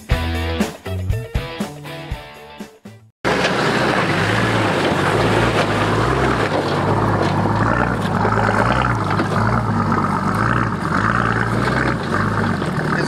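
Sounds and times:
vehicle engine running: 0:03.2 - 0:13.0
constant noisy rush: 0:03.3 - 0:13.0.

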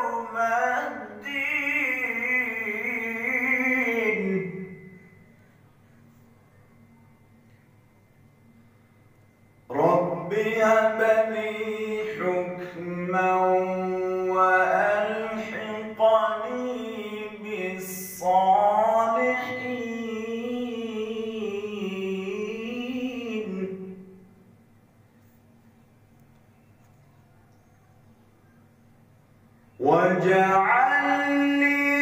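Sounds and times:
man reciting melodically: 0:00.0 - 0:04.8, 0:09.7 - 0:24.2, 0:29.8 - 0:32.0.

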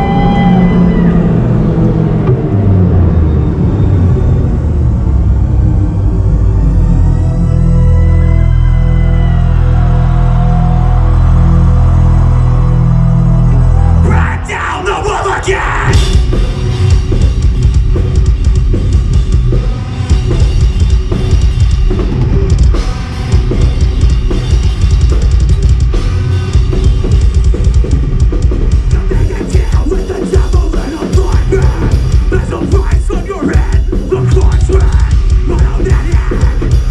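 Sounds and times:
low droning intro: 0:00.0 - 0:36.9
metal band playing live: 0:07.4 - 0:36.9.

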